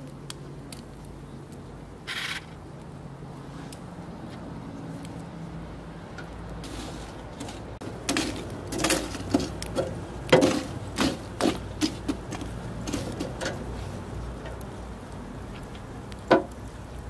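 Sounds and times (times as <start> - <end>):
metal grill basket clanking: 6.2 - 13.7.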